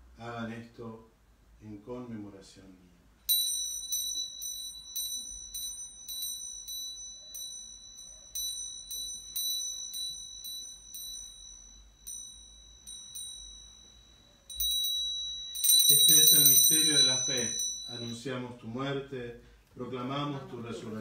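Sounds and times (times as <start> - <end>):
small altar bell struck: 3.3 - 18.4.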